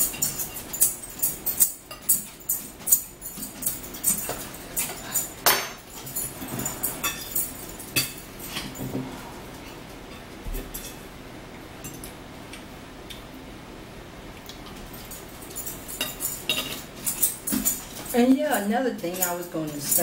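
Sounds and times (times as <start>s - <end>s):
cutlery clinking on plate: 0.0s - 9.0s, 15.0s - 20.0s.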